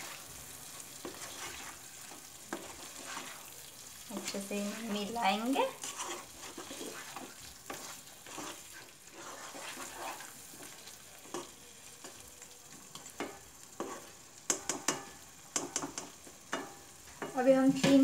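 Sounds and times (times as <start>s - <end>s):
faint sizzle: 0.0s - 18.0s
spatula scraping a pan: 0.0s - 18.0s
spatula tapping against a pan: 13.0s - 18.0s.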